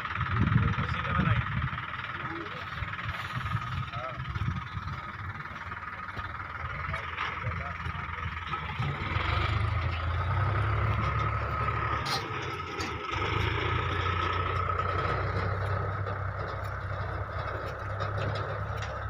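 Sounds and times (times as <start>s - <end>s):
tractor diesel engine idling: 0.0s - 19.0s.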